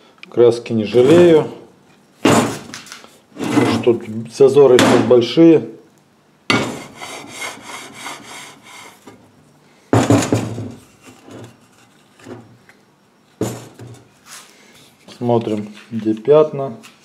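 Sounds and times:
steel straightedge rubbing on steel: 6.6s - 9.1s.

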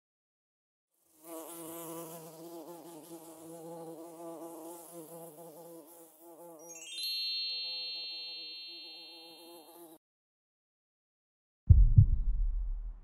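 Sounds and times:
bee buzzing: 1.0s - 6.6s, 7.7s - 10.0s.

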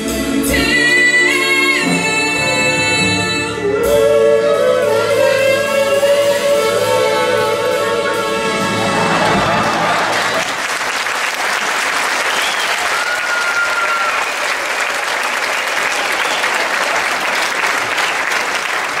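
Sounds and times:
audience applauding: 8.9s - 19.0s
whistled note: 12.2s - 14.6s.

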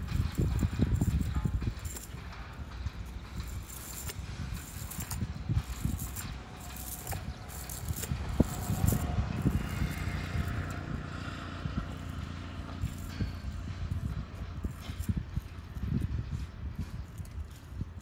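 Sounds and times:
chain weights clinking: 0.0s - 10.9s
low rumble: 0.0s - 18.0s.

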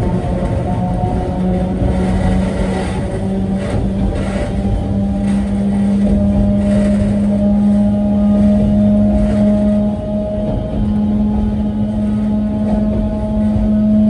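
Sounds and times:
train motor hum: 0.0s - 14.0s
wheels rumbling on track: 0.0s - 14.0s.

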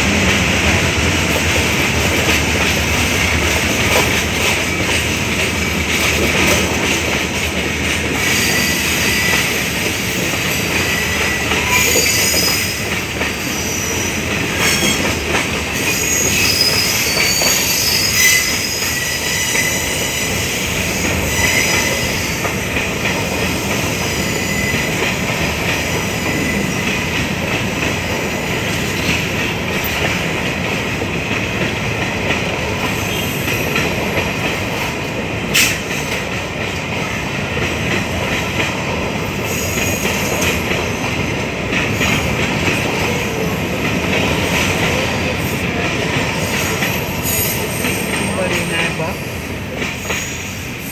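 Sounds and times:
freight train rumbling on rails: 0.0s - 50.9s
high wheel squeal: 8.2s - 9.6s, 10.8s - 15.0s, 15.7s - 22.4s, 24.0s - 25.0s.

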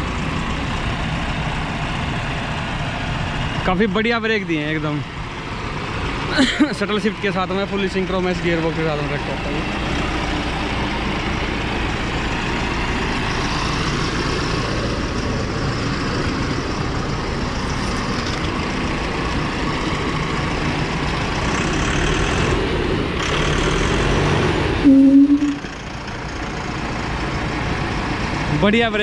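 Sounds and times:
tractor diesel engine running: 0.0s - 29.0s
short loud tone: 24.8s - 25.7s.

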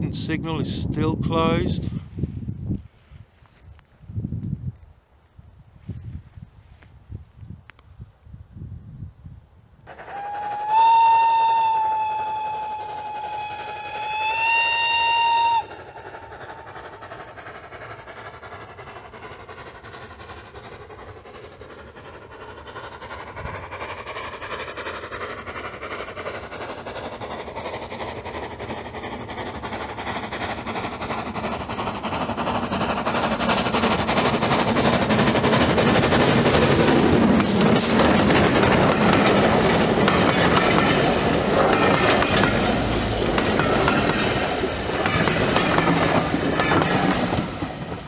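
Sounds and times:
steam train running: 0.0s - 4.8s, 5.7s - 8.4s, 9.1s - 48.0s
steam locomotive whistle: 9.9s - 16.0s.

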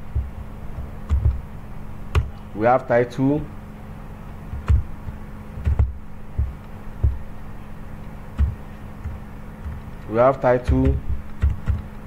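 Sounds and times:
low electrical hum: 0.0s - 12.0s
keyboard keystrokes: 4.5s - 7.2s, 8.4s - 12.0s.

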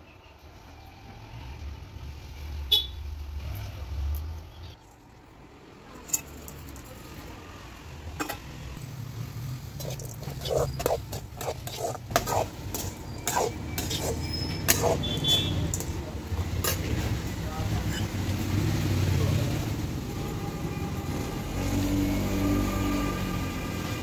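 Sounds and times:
metal ladle scraping a pot: 9.8s - 18.2s.

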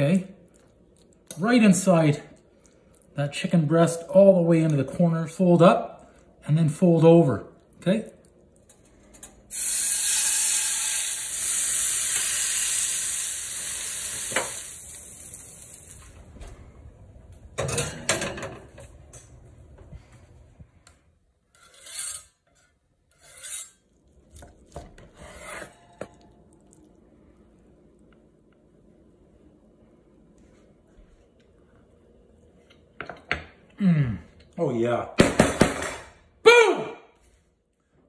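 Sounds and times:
chicken sizzling in hot oil: 9.5s - 16.0s.

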